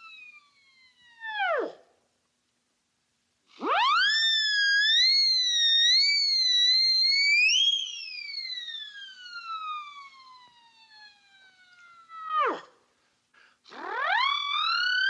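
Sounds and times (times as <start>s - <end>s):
cartoon whistle noisemaker: 0.0s - 1.7s, 3.6s - 12.6s, 14.0s - 15.0s.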